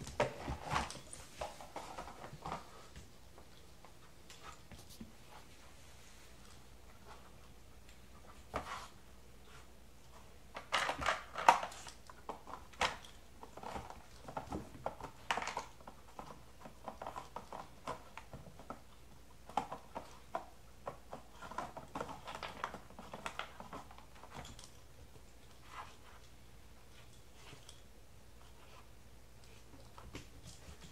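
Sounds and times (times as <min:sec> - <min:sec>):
plastic clicks and clatters: 0:10.5 - 0:24.8.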